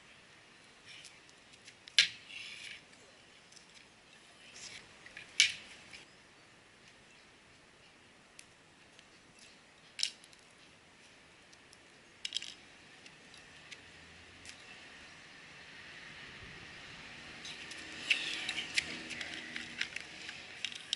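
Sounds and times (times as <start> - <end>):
faint outdoor background: 0.0 - 20.9.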